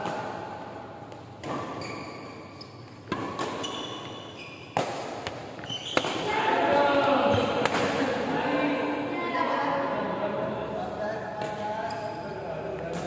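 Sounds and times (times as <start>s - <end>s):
shoes squeaking on court: 1.1s - 6.3s, 11.5s - 13.0s
racket hitting shuttlecock: 2.6s - 8.1s.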